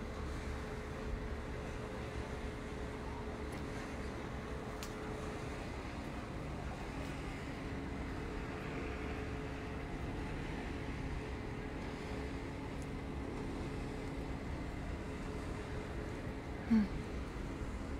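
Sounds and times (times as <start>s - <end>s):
faint hum: 0.0s - 17.9s
low background rumble: 0.0s - 17.9s.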